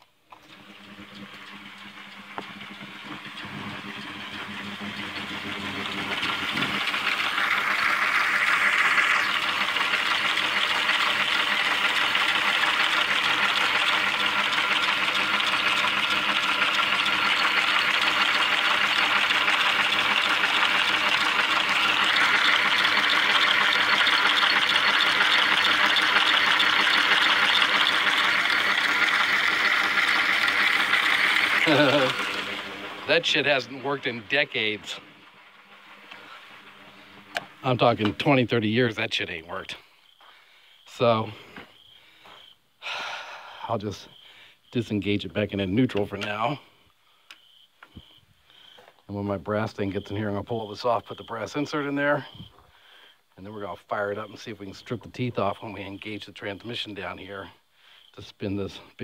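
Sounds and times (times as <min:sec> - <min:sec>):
lathe motor whirring: 0:00.0 - 0:40.2.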